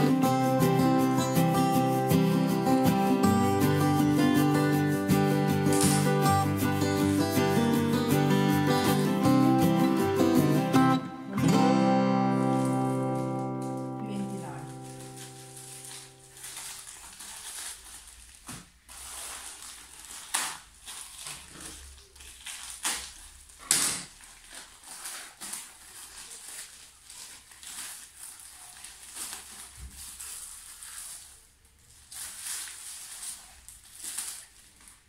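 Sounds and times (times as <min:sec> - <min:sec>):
plastic bags crinkling: 0:04.1 - 0:06.5, 0:12.1 - 0:35.0
plastic tearing open: 0:05.6 - 0:06.2, 0:12.3 - 0:35.0.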